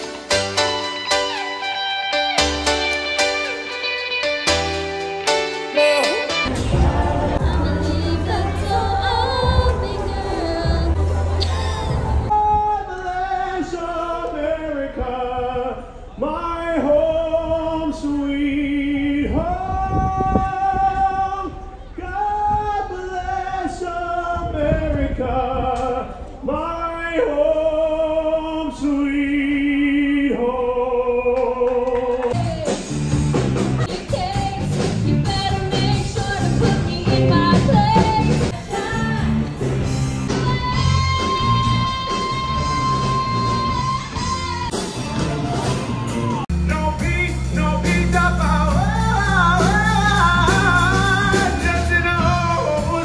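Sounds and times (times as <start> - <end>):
man singing with live band: 5.7 - 7.4, 46.2 - 53.0.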